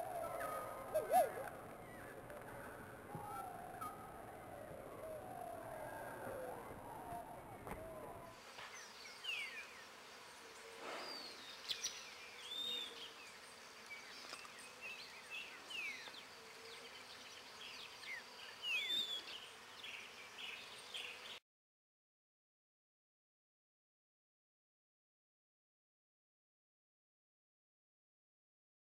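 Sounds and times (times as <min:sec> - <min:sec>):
birds chirping and whistling: 0:10.8 - 0:13.1, 0:13.9 - 0:16.2, 0:16.9 - 0:21.2.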